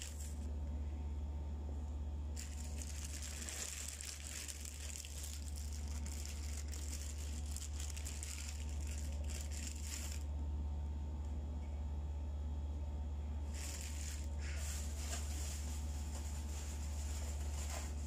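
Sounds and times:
food packaging crinkling: 0.0 - 0.5, 2.4 - 10.3, 13.5 - 18.0
steady low hum: 0.0 - 18.0.

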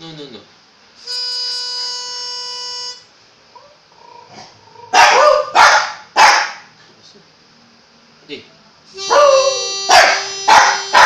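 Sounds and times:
harmonica note: 1.0 - 3.2, 8.9 - 11.0
dog barking: 4.9 - 6.7, 9.1 - 11.0.

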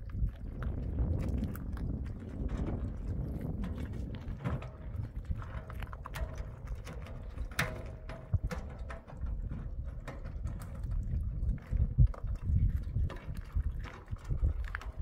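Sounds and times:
low rumble: 0.0 - 7.5
footsteps on gravel: 0.0 - 15.0
stones and wheelbarrow clattering: 0.0 - 15.0.

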